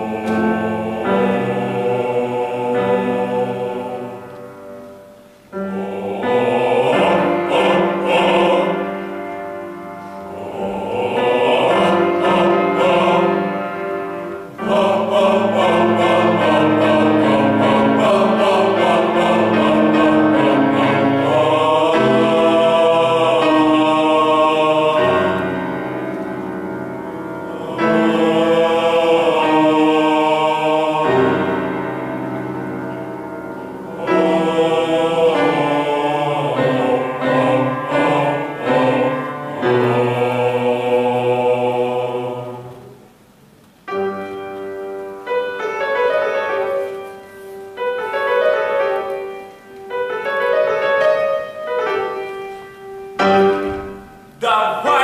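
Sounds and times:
male vocal ensemble singing: 0:00.0 - 0:04.5, 0:05.6 - 0:09.5, 0:10.1 - 0:26.4, 0:27.2 - 0:32.3, 0:33.8 - 0:43.0, 0:53.4 - 0:55.0
piano playing repeated chords: 0:00.0 - 0:55.0.

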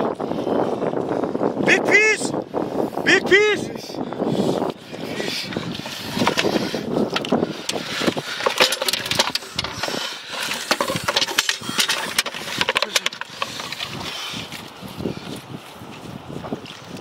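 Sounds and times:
bottles clattering against metal bucket: 0:05.8 - 0:14.0
plastic bottles crinkling: 0:05.8 - 0:14.2.

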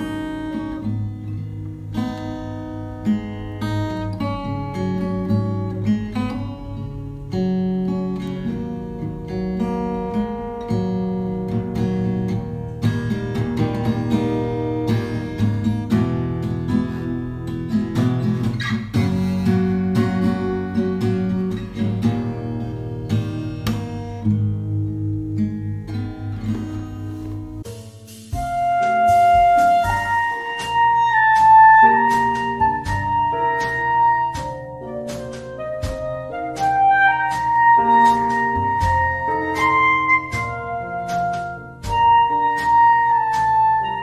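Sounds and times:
acoustic guitar music: 0:00.0 - 0:44.0.

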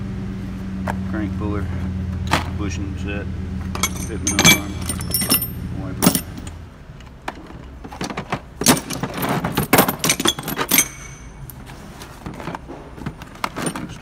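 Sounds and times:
metal tools clattering in drawer: 0:03.7 - 0:06.6, 0:07.2 - 0:11.6, 0:12.2 - 0:14.0.

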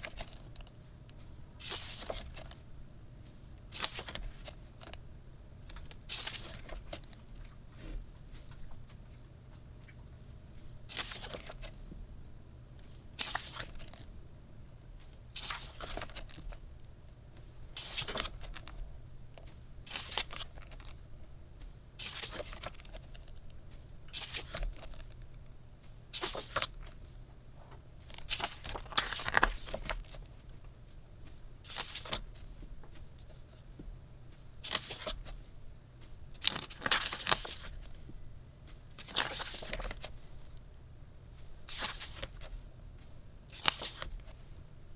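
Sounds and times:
book pages turning: 0:00.0 - 0:02.6, 0:03.6 - 0:05.0, 0:05.7 - 0:09.2, 0:10.9 - 0:11.8, 0:12.8 - 0:14.1, 0:15.3 - 0:16.6, 0:17.7 - 0:21.0, 0:22.0 - 0:25.4, 0:26.1 - 0:27.0, 0:28.0 - 0:31.0, 0:31.6 - 0:33.6, 0:34.6 - 0:35.4, 0:36.4 - 0:38.0, 0:38.7 - 0:40.6, 0:41.6 - 0:42.6, 0:43.5 - 0:44.4.

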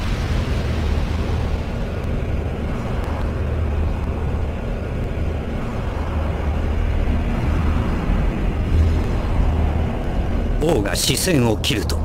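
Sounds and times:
low rumbling drone: 0:00.0 - 0:12.0.

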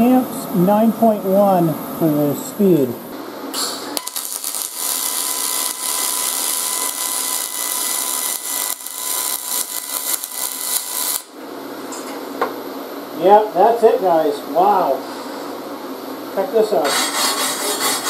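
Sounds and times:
welding arc crackling hiss: 0:03.5 - 0:11.4.

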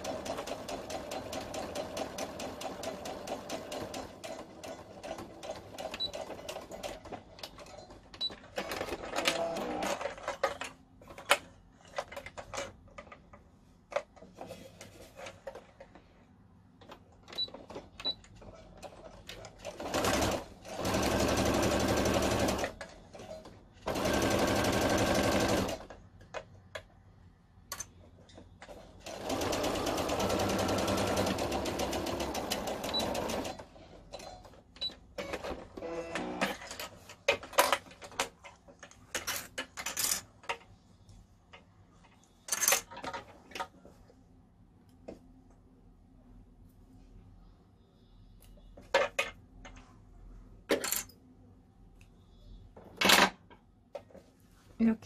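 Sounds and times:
sewing machine stitching: 0:00.0 - 0:07.9, 0:08.5 - 0:10.5, 0:18.8 - 0:26.0, 0:28.6 - 0:33.7.

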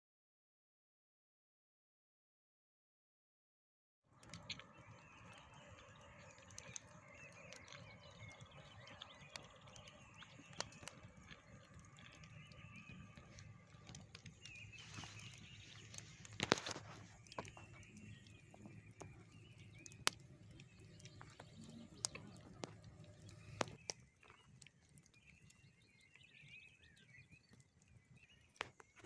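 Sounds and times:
wood fire crackling: 0:04.1 - 0:29.0
loud fire pops: 0:12.3 - 0:24.4.

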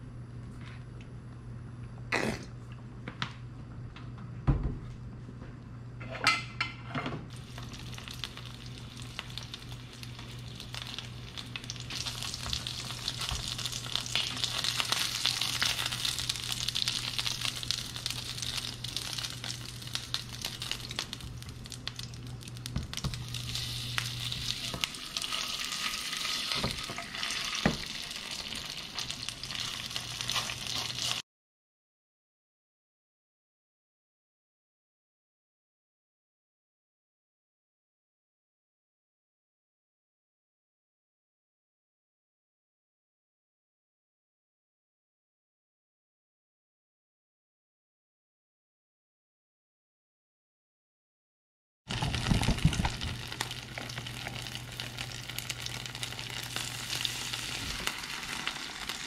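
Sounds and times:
skewers sizzling in oil: 0:07.3 - 0:31.2, 0:51.9 - 0:59.0.

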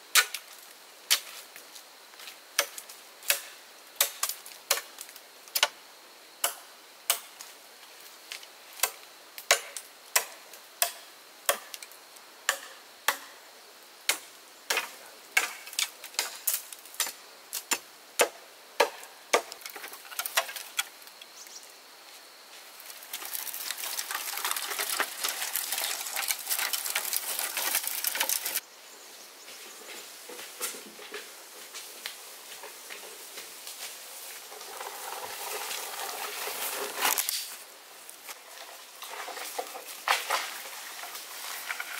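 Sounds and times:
rustling scratching noise: 0:33.0 - 0:41.9.

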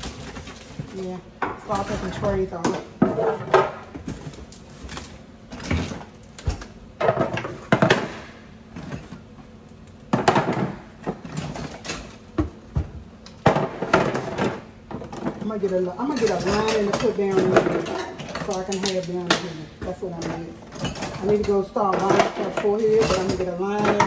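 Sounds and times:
kitchenware clattering: 0:00.0 - 0:04.9, 0:13.4 - 0:24.0.

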